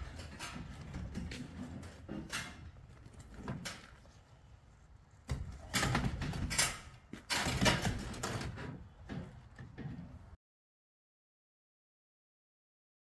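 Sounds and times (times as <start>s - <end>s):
garage door panels rattling: 5.4s - 10.2s.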